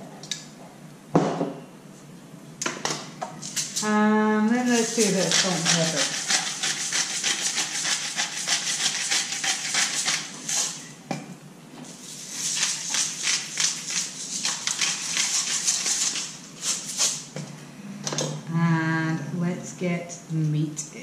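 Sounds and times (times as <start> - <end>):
pepper grinder crackling: 4.6 - 10.8.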